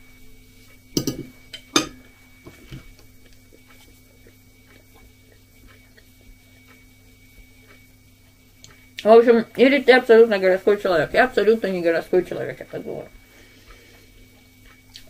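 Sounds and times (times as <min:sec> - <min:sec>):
chewing: 0:02.9 - 0:06.8.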